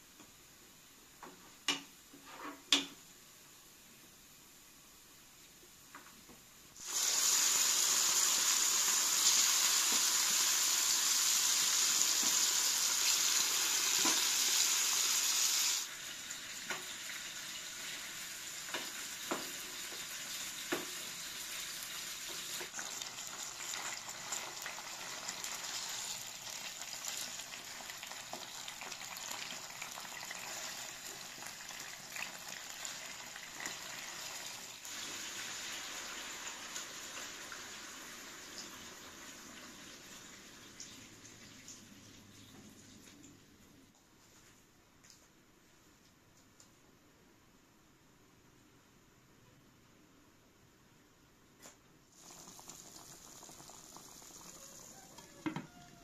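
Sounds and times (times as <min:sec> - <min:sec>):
chicken sizzling in pot: 0:06.8 - 0:42.3, 0:52.1 - 0:56.0.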